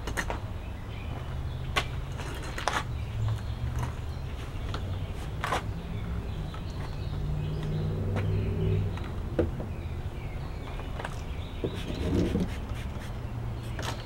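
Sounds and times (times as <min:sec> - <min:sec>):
low engine hum: 0:02.8 - 0:12.5.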